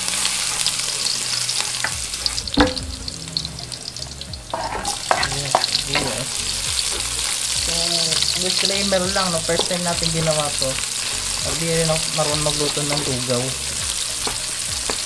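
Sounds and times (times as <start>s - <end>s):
garlic sizzling in oil: 0.0s - 15.0s
sharp knock: 2.4s - 5.3s.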